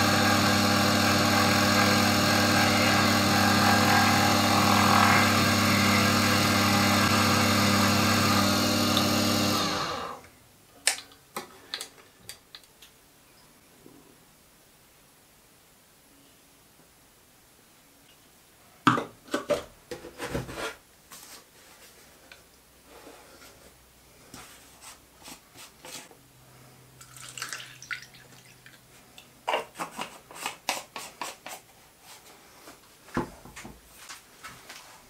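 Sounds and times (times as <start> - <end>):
liquid pouring into cup: 27.0 - 28.8.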